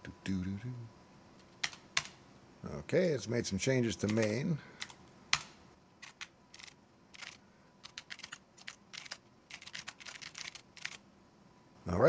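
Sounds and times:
keyboard typing: 1.6s - 2.2s, 4.0s - 11.0s.

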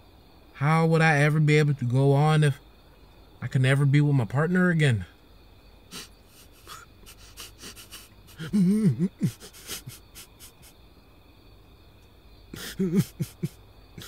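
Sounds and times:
man sobbing: 5.9s - 10.7s, 12.5s - 14.0s
man sniffling: 5.9s - 10.8s, 12.6s - 13.6s.

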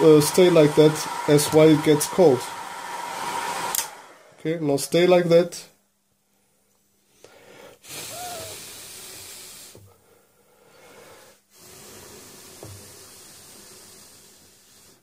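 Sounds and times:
breath hissing close to microphone: 7.2s - 15.0s.

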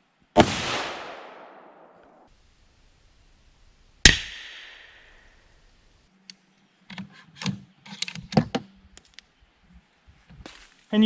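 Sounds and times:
rifle shot echo: 0.4s - 2.3s, 4.0s - 5.5s.

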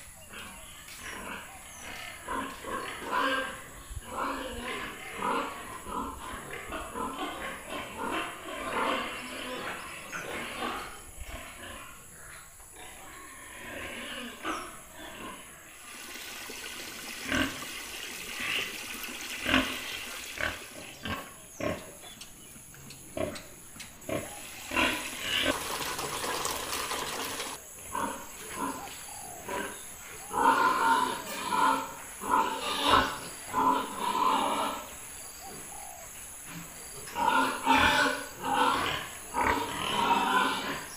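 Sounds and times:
pigs calling: 0.2s - 16.0s, 16.9s - 40.9s
hose water running into barrel: 15.7s - 21.0s, 24.5s - 27.6s.

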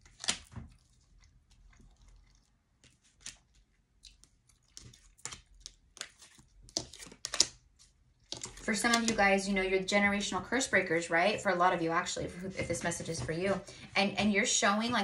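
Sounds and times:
cards clicking and tapping: 4.2s - 7.6s.

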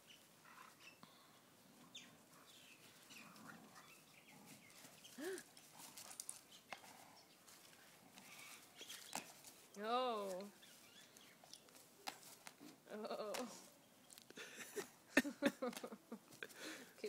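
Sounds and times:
dogs playing tug of war: 1.6s - 9.8s, 10.4s - 12.8s.

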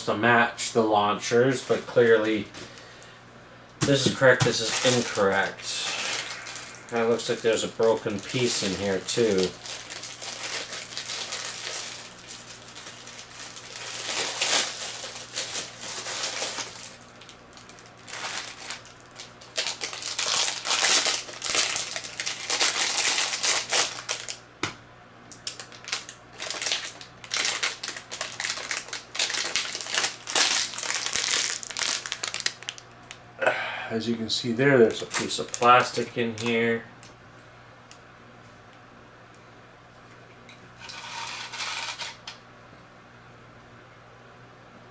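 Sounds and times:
plastic bags crinkling: 3.8s - 24.4s, 25.4s - 33.2s, 34.7s - 36.8s.

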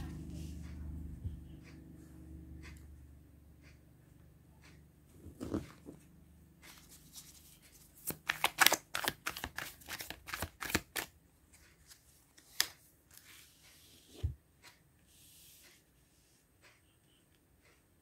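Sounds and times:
cards being shuffled: 6.7s - 11.1s, 11.8s - 13.4s.

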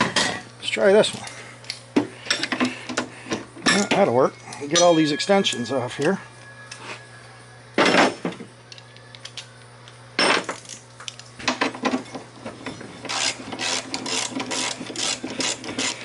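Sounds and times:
metal hand tools clinking and scraping: 3.7s - 6.9s.

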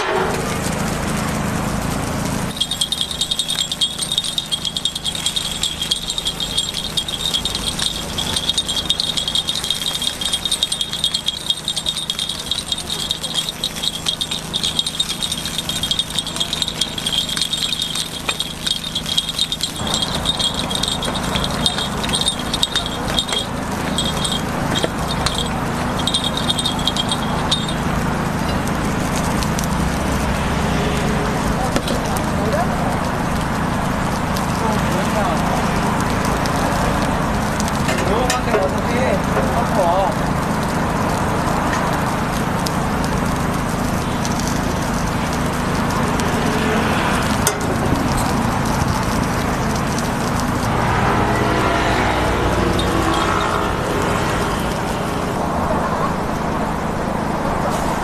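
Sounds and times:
metal picks clicking on a pan: 2.5s - 28.6s, 35.9s - 42.3s, 44.1s - 54.8s
high ringing: 2.5s - 30.0s, 52.5s - 54.8s.

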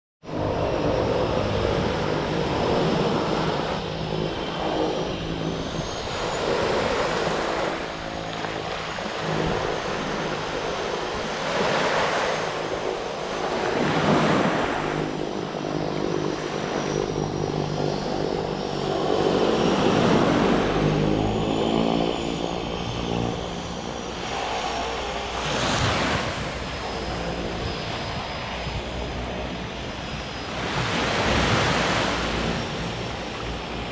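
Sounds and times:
propeller engines droning: 0.2s - 33.9s
small waves washing on beach: 30.4s - 33.9s.

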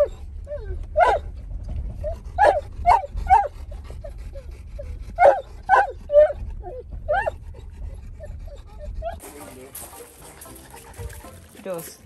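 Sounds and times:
dog whining and yipping: 0.0s - 1.3s, 2.0s - 9.2s.

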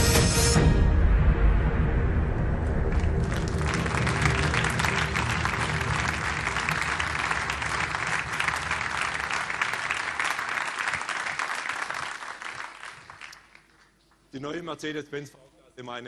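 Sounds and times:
music: 0.0s - 10.3s
audience applauding: 2.9s - 14.3s.

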